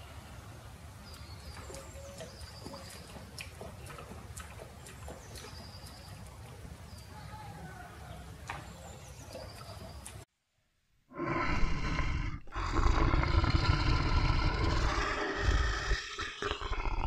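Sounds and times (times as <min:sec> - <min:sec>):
deep animal vocalisation: 0:11.1 - 0:17.0.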